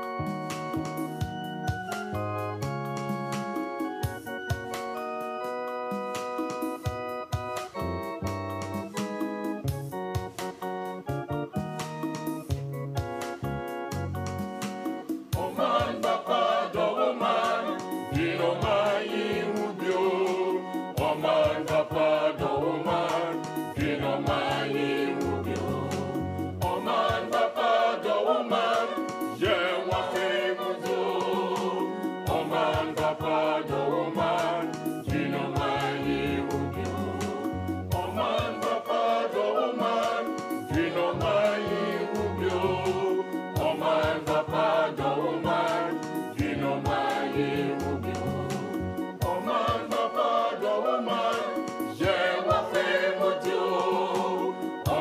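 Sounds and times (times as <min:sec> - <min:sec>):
gospel choir singing: 0:14.7 - 0:55.0
steady bass line: 0:23.6 - 0:27.3, 0:35.0 - 0:38.4, 0:47.6 - 0:49.3.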